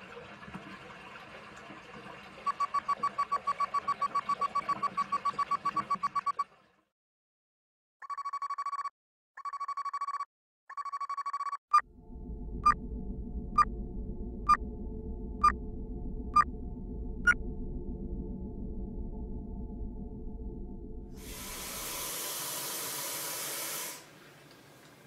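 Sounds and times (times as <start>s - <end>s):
telephone ringing: 2.5s - 6.4s, 8.0s - 11.6s
short sharp beeps: 8.0s - 11.8s
steady low hum: 11.8s - 22.4s.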